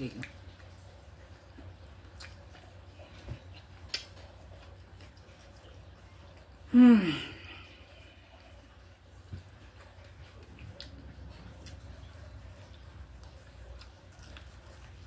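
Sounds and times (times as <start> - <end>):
woman's wordless vocal sigh: 6.7 - 7.7.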